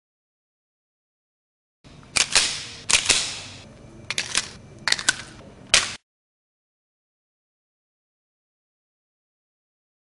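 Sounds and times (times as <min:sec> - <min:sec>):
airsoft pistol firing: 0:02.2 - 0:03.6.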